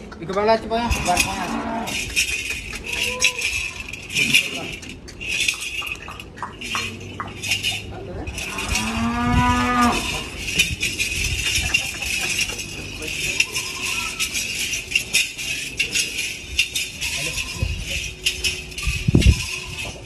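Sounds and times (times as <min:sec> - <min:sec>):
cattle mooing: 0:00.9 - 0:02.1, 0:08.4 - 0:10.5.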